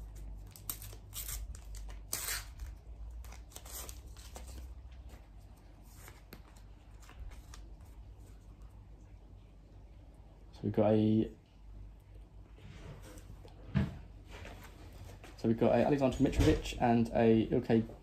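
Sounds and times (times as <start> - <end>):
trading cards rustling: 0.0 - 8.7
wrapper tearing and crinkling: 0.4 - 4.7.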